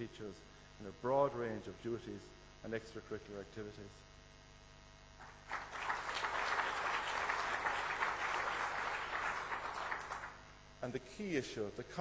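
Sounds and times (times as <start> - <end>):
audience applauding: 5.2 - 10.5.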